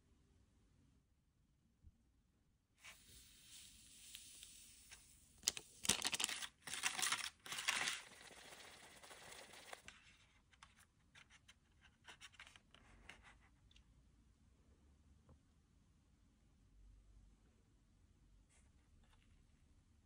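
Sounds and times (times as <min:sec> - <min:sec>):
plastic packet crinkling: 0:05.4 - 0:10.0.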